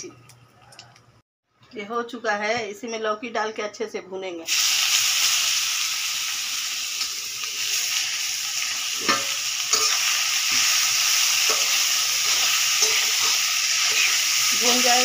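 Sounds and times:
vegetables sizzling in hot fat: 4.5s - 15.0s.

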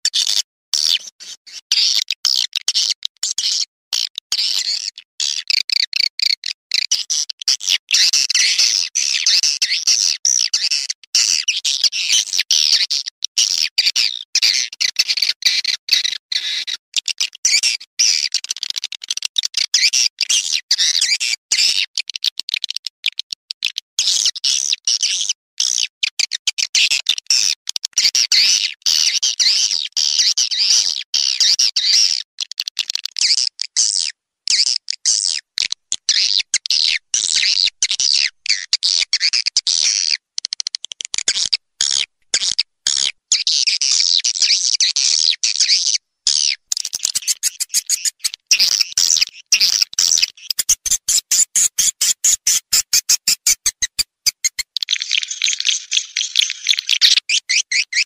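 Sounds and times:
fast run of clicks: 46.7s - 55.3s
swiftlets twittering chirps: 46.7s - 57.0s.

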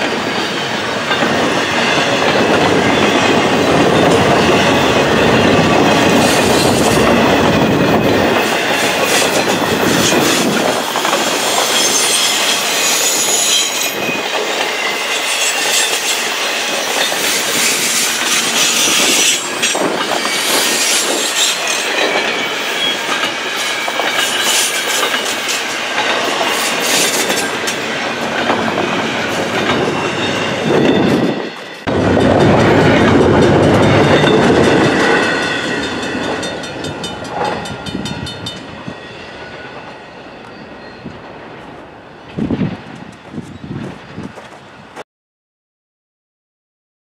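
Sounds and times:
freight train rolling past: 0.0s - 45.0s
wheels clicking over rail joints: 14.1s - 38.7s.

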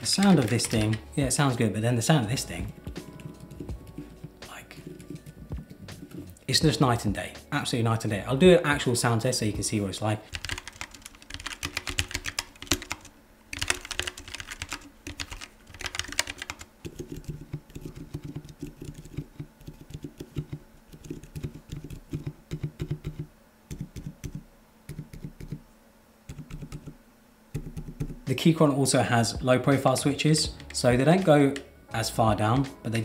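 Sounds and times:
muted keyboard typing: 0.0s - 1.1s, 2.6s - 6.3s, 10.3s - 25.6s, 26.3s - 27.0s, 27.6s - 28.2s
sharp bright keyboard clacking: 0.0s - 1.1s, 10.3s - 25.6s.

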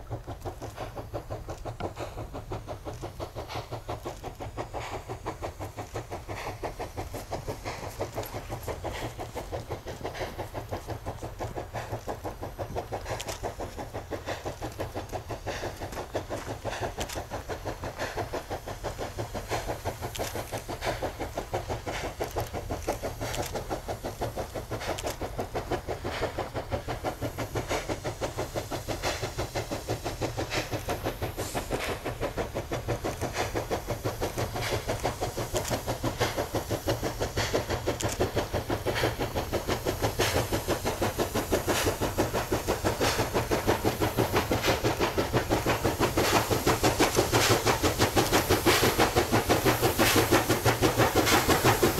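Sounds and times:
steam locomotive chuffing: 0.0s - 51.9s
train rumble: 0.0s - 51.9s.

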